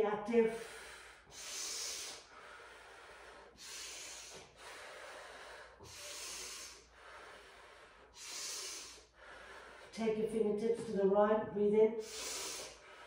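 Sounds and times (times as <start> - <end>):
person breathing slowly: 0.5 - 10.0, 12.0 - 13.0.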